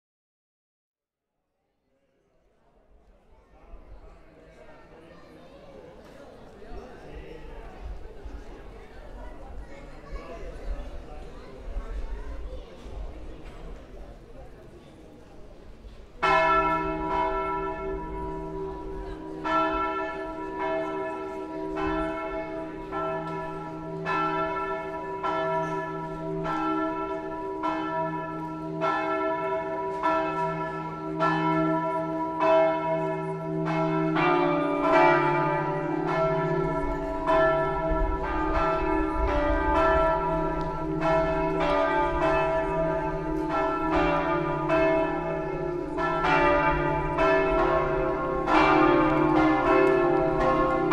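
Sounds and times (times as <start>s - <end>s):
church bells ringing: 16.2s - 50.9s.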